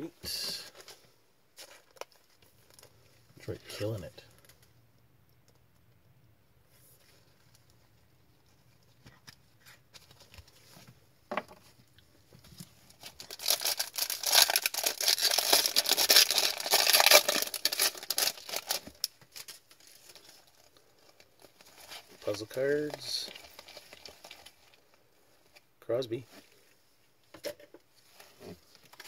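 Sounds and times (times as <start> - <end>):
foil wrapper tearing and crinkling: 12.9 - 20.7.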